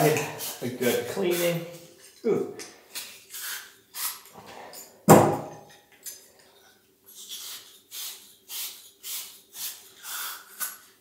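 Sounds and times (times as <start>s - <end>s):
sharp knock: 5.1s - 5.6s.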